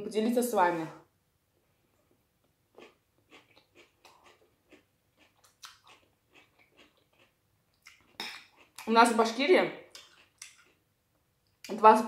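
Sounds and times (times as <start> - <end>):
person chewing crunchy vegetables: 2.1 - 8.9, 9.9 - 10.9.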